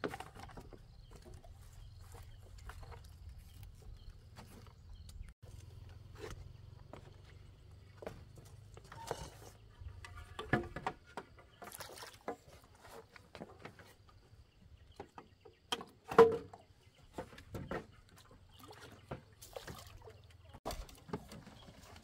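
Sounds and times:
water splashing and sloshing: 6.4s - 14.2s, 15.8s - 22.0s.

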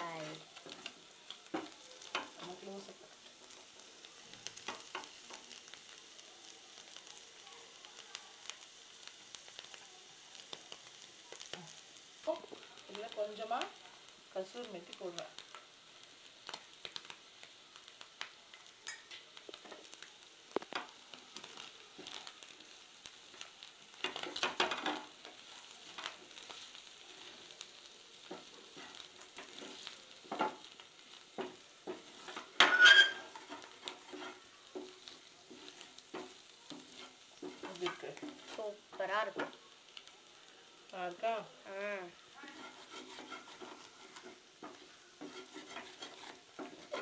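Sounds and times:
potatoes sizzling in oil: 0.0s - 47.0s
spatula scraping a pan: 28.2s - 38.8s, 42.3s - 47.0s
sharp clatter against pan: 31.4s - 33.6s.

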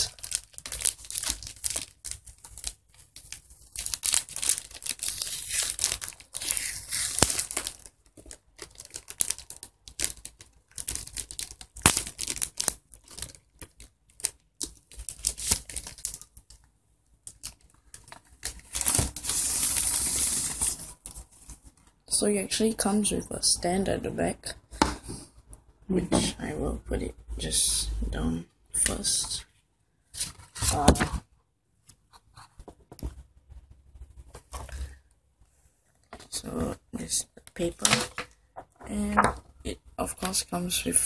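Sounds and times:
plastic packaging tearing and crinkling: 0.0s - 16.6s, 17.2s - 21.7s.

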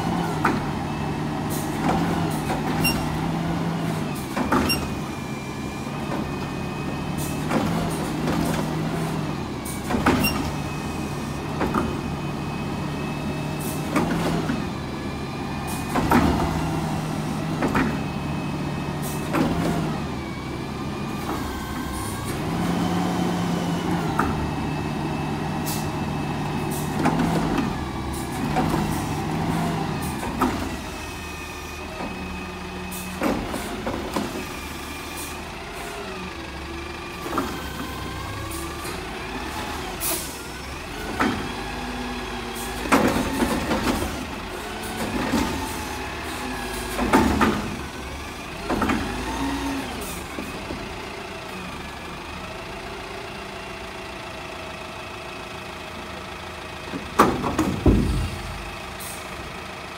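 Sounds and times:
diesel engine running: 0.0s - 59.9s
clanks and bangs of carts dumping: 3.9s - 5.2s, 5.9s - 12.2s, 13.5s - 14.7s, 15.7s - 20.1s, 25.6s - 35.9s, 37.2s - 51.0s, 56.9s - 59.6s
hydraulics whining: 56.0s - 59.9s.

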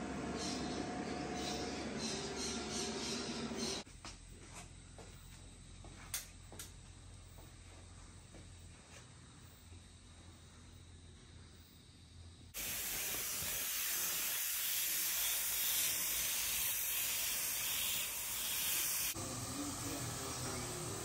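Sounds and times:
paint spray gun hissing: 12.6s - 21.0s.

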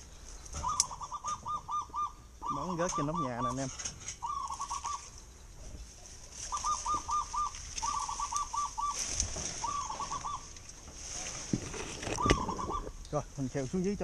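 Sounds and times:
rustle of leaves and branches: 0.0s - 14.0s
dove cooing: 0.5s - 5.2s, 6.3s - 10.8s, 11.7s - 13.0s.

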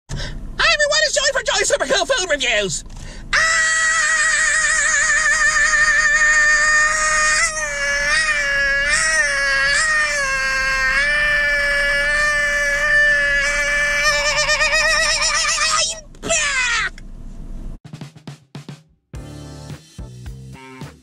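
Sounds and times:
man wailing in falsetto: 3.4s - 16.9s.

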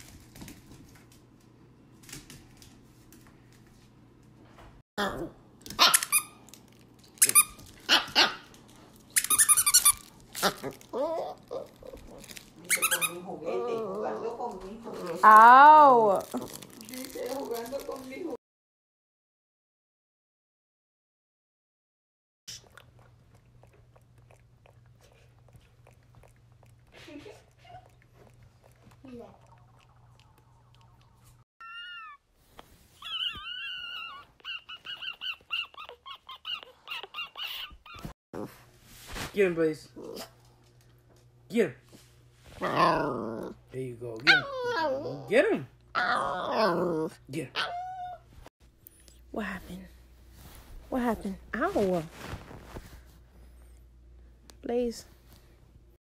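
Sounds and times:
puppy barking and yipping: 5.8s - 6.4s, 7.4s - 8.5s, 33.0s - 38.1s, 47.6s - 48.2s
puppy whining: 9.2s - 15.4s, 29.5s - 38.6s, 44.2s - 48.5s.

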